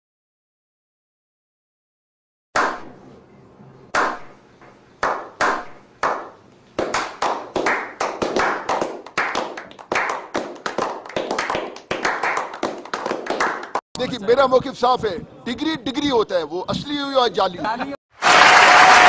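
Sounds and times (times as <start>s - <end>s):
men clapping: 5.0s - 13.8s, 18.2s - 19.0s.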